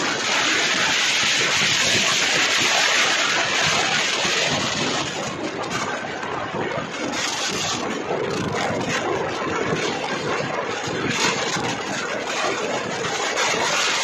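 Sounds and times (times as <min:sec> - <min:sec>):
wind and road noise: 0:00.0 - 0:14.0
wind hitting microphone: 0:00.0 - 0:14.0.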